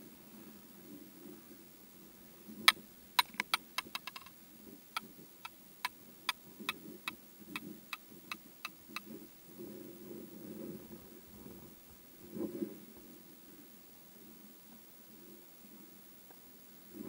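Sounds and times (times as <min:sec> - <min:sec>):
ski poles tapping: 0:03.2 - 0:04.3.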